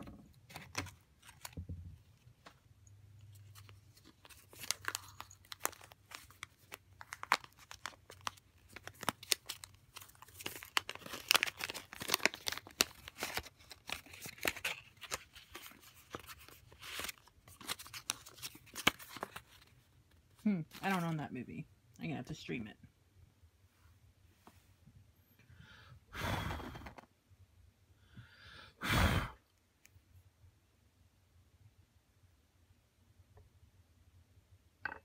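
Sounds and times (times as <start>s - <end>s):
paper envelope crackling and rustling: 0.5s - 1.7s, 3.3s - 19.8s.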